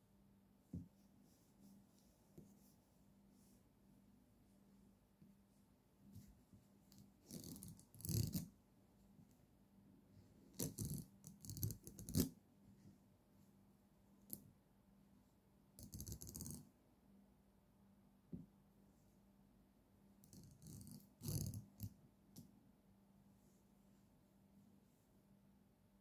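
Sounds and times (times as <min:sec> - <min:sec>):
pen scratching on notebook: 0:20.4 - 0:21.9.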